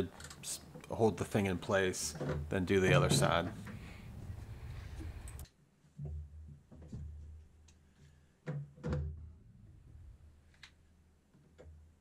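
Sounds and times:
dull thumps and knocks: 2.2 - 5.2.

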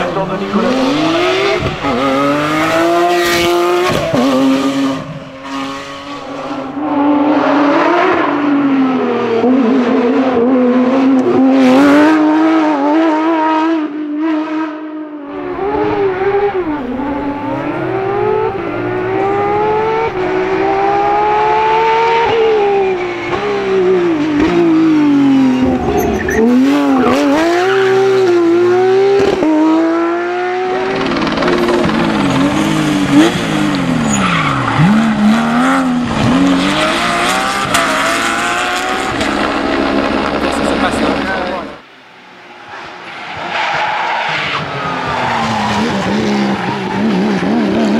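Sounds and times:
rally car engines at full revs: 0.0 - 47.9.

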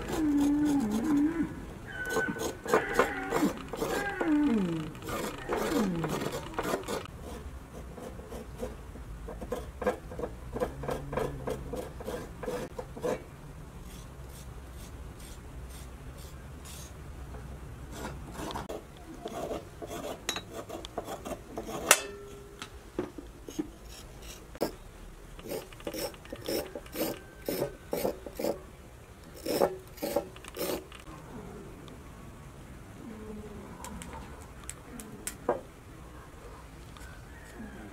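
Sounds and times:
knife scraping carrots: 2.0 - 8.8, 25.4 - 28.6, 29.4 - 31.0.

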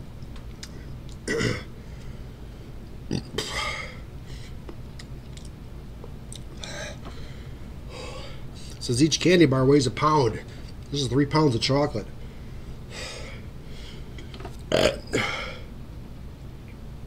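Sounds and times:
wet mouth clicks: 0.5 - 1.2
man burping: 1.2 - 1.7, 3.1 - 4.0, 14.6 - 15.7.

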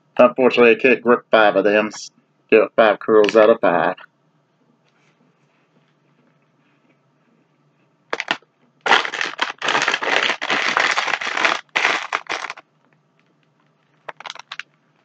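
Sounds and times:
snack bag crinkling: 8.1 - 12.6, 14.1 - 14.7.

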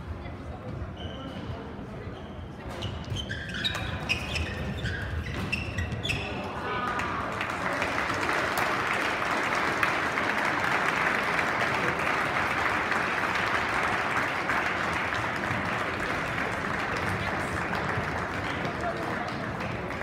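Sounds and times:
audience clapping: 6.8 - 20.0.

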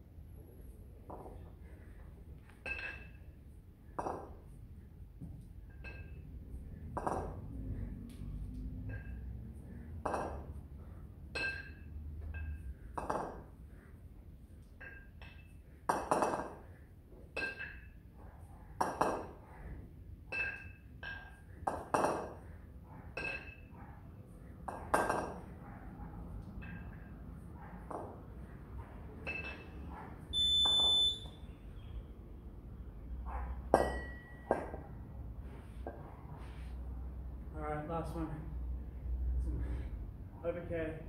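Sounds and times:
kettlebells clinking together: 2.4 - 3.4, 5.2 - 7.6, 8.7 - 10.6, 11.2 - 13.6, 14.6 - 18.0, 20.2 - 22.5, 23.1 - 23.8, 24.6 - 25.5, 26.4 - 28.2, 29.2 - 29.9, 33.7 - 34.8.

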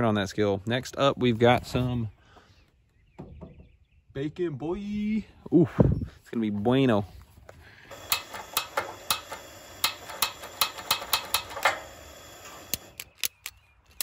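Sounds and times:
gas burner hiss: 7.9 - 13.0.

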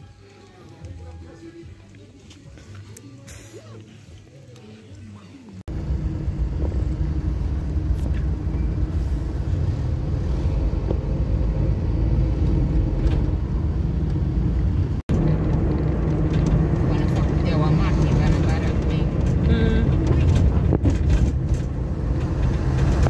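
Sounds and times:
road noise: 5.6 - 23.0
car engine rumble: 5.7 - 23.0.

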